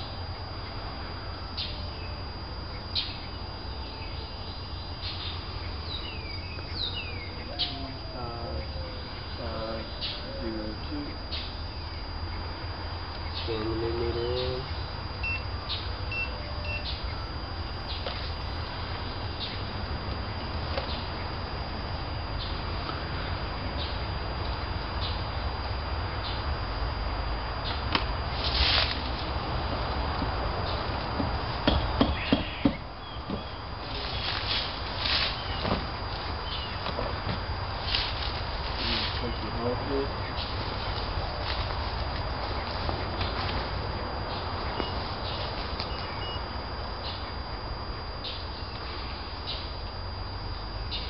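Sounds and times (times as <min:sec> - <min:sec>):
birds chirping: 0:00.0 - 0:27.9, 0:29.4 - 0:51.0
steady high-pitched tone: 0:00.0 - 0:51.0
high bird chirp: 0:14.6 - 0:19.7
rustle: 0:28.3 - 0:29.4, 0:33.8 - 0:39.7.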